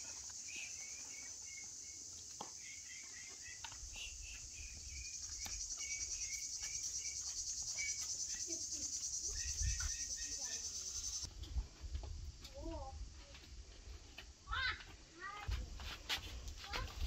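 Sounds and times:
insect chirring: 0.0s - 11.3s.

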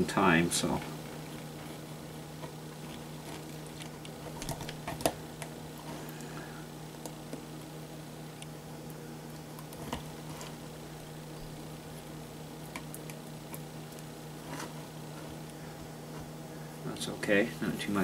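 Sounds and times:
steady low hum: 0.0s - 18.0s
small clicks and rustles of hands: 2.4s - 6.3s.

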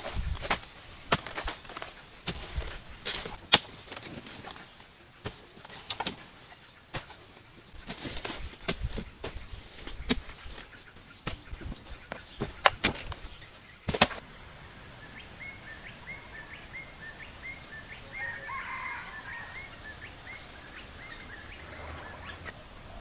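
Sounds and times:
fruit bunches thudding onto pile: 13.9s - 14.2s
bird chirping: 14.6s - 23.0s.

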